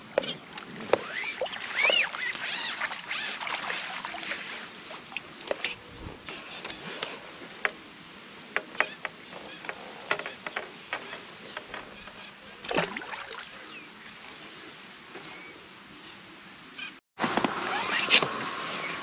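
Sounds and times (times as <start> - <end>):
fishing tackle clicks and taps: 8.6 - 11.9.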